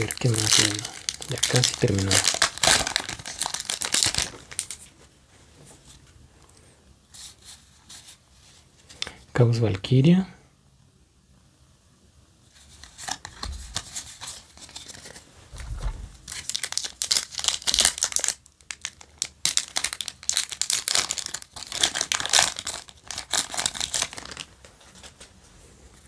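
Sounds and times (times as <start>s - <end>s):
foil wrapper tearing and crinkling: 0.0s - 4.9s, 16.2s - 24.6s.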